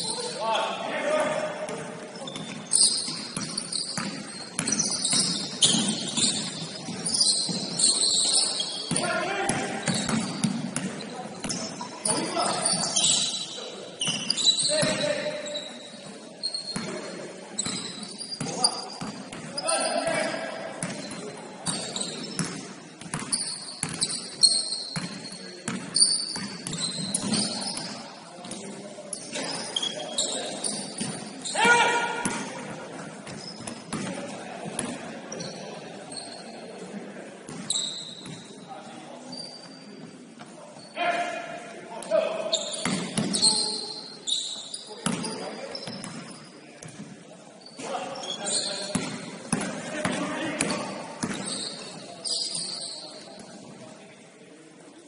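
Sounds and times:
high-pitched court noise: 0.0s - 36.9s, 37.5s - 53.9s
basketball bouncing: 1.7s - 7.8s, 8.9s - 11.6s, 21.7s - 24.1s, 24.9s - 28.6s, 42.8s - 43.4s, 45.0s - 45.3s, 48.9s - 51.5s
shoes squeaking on hardwood: 2.2s - 16.9s.

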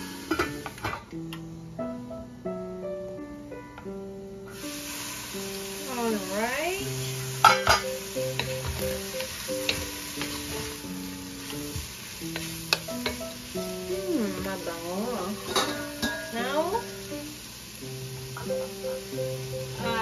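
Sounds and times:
food sizzling in a pot: 0.0s - 1.9s, 4.2s - 20.0s
background music with held notes: 0.0s - 20.0s
spatula knocking and scraping pot: 15.4s - 16.4s.

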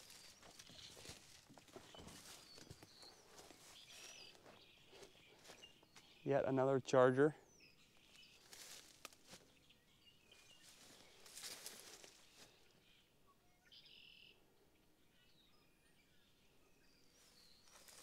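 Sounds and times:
soft rustle: 0.0s - 4.6s, 8.1s - 9.5s, 10.6s - 12.6s
distant bird chirps: 0.0s - 18.0s.

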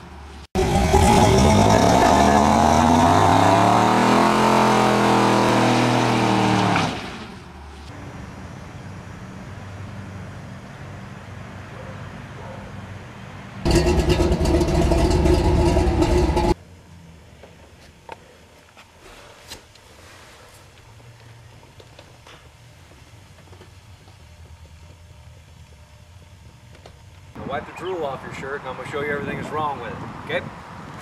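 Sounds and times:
car engine rumbling and revving: 0.0s - 8.3s, 13.5s - 16.6s.

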